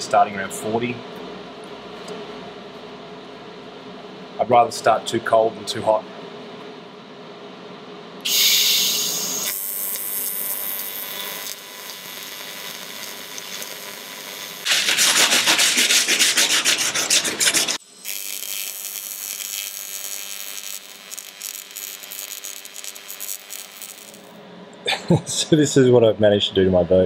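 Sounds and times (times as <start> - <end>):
welding arc hissing: 8.2 - 24.4
scratching strokes on metal: 14.7 - 17.8.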